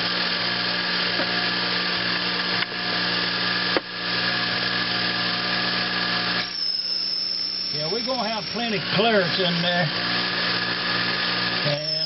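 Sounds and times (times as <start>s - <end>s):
lathe motor humming: 0.0s - 12.0s
faint high whine: 6.2s - 12.0s.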